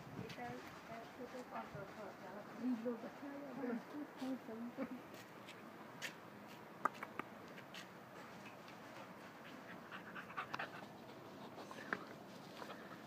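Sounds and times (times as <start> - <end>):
puppy panting: 8.9 - 13.0.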